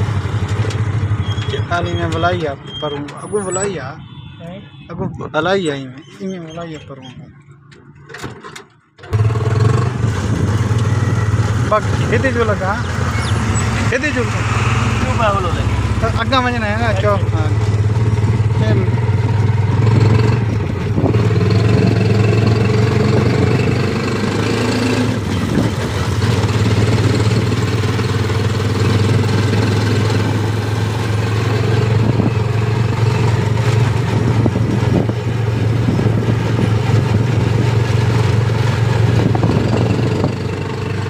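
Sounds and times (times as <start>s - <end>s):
vehicle engine humming: 0.0s - 41.0s.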